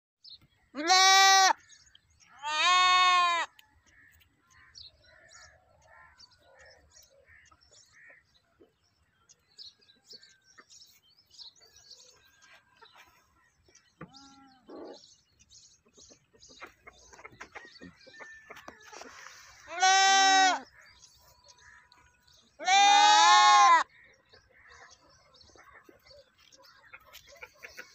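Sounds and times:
goat bleating: 0.8s - 1.6s, 2.4s - 3.6s, 19.7s - 20.7s, 22.6s - 23.9s.

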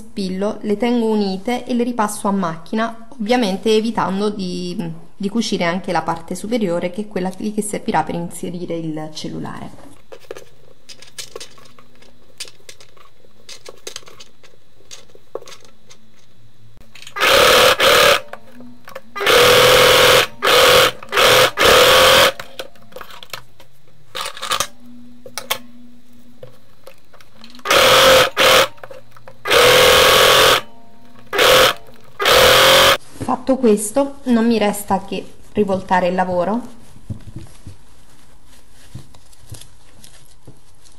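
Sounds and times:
sewing machine stitching: 17.1s - 22.6s, 27.6s - 33.0s.

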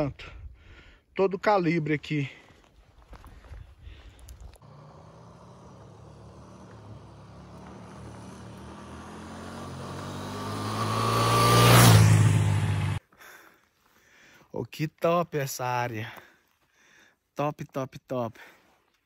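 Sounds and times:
vehicle approaching: 4.5s - 13.0s.

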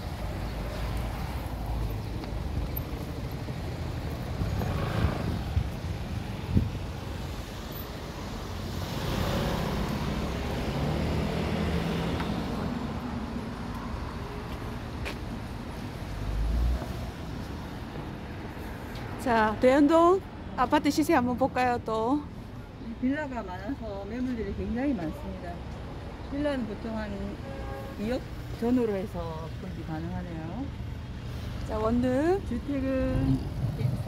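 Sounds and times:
cars driving past: 0.0s - 21.7s.

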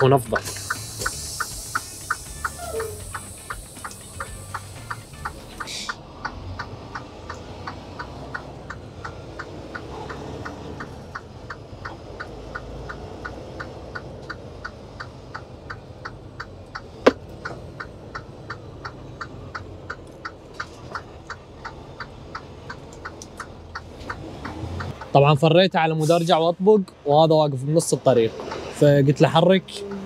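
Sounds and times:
diesel engine humming: 0.0s - 30.0s
turn signal ticking: 0.0s - 30.0s.

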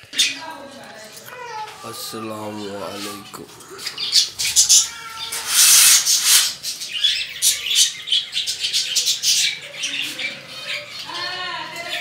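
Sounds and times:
budgerigars chirping: 3.8s - 12.0s.

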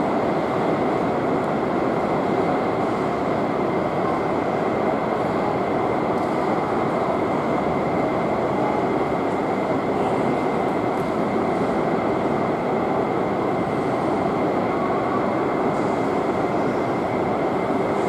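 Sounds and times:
jet engines taxiing with whine: 0.0s - 18.0s.

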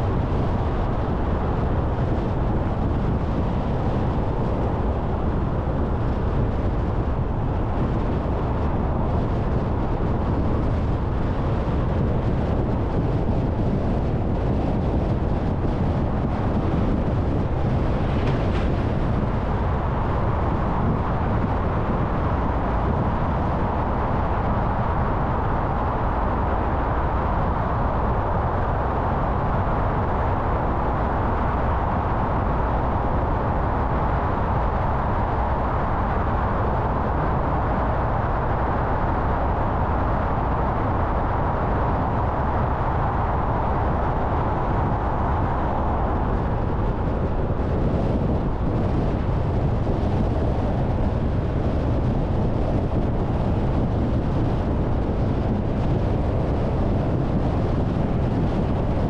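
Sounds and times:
car road noise: 15.3s - 29.1s.

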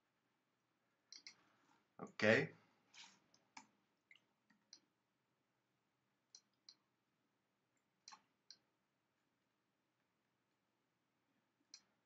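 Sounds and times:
faint computer mouse clicks: 1.1s - 1.4s.

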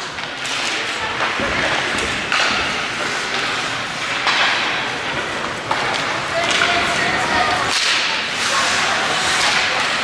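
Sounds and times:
skates scraping on ice: 0.0s - 10.0s
spectators chattering: 4.8s - 10.0s.

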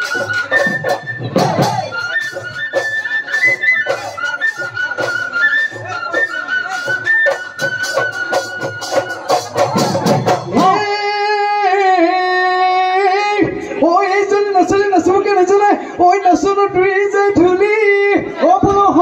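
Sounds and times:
wind instrument melody: 0.0s - 13.3s
drum beats: 0.0s - 19.0s.

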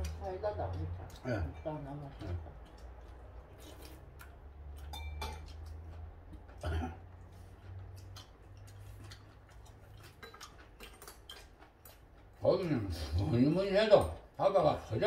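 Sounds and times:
chopsticks and spoons clicking on bowls: 0.0s - 6.9s, 7.6s - 12.0s.

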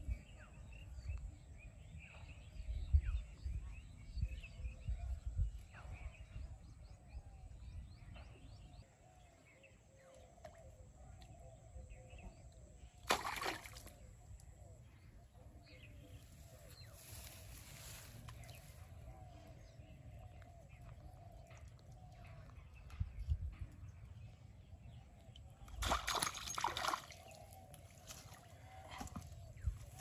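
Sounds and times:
wind on microphone: 2.5s - 8.4s
sharp water splash: 13.0s - 14.0s, 25.8s - 27.3s.

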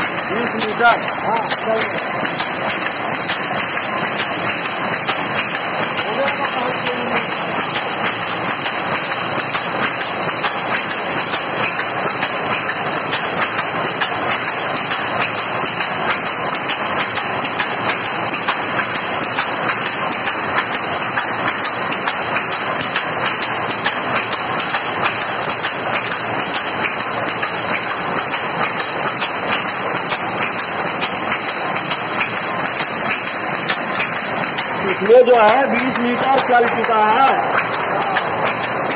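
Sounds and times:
power loom clattering: 0.0s - 38.9s.

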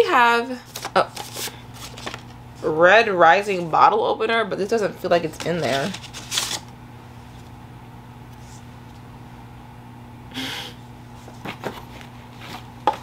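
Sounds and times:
low room hum: 0.0s - 13.0s
paper packet rustle: 0.7s - 2.4s, 5.2s - 6.7s.

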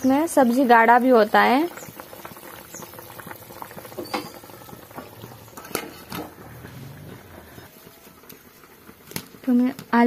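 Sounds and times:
curry bubbling at a boil: 0.0s - 10.0s.

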